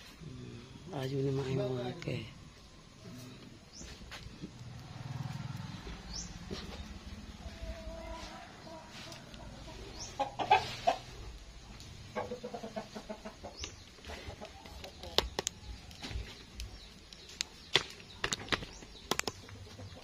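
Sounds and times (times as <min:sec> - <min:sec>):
chickens clucking: 0:01.0 - 0:20.0
sharp clicks and knocks: 0:14.7 - 0:19.6.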